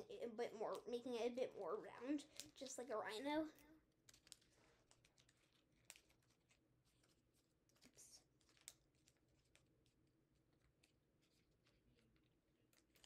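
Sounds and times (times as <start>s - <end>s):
paper crinkling while being folded: 2.1s - 13.0s
paper rustle: 4.1s - 13.0s.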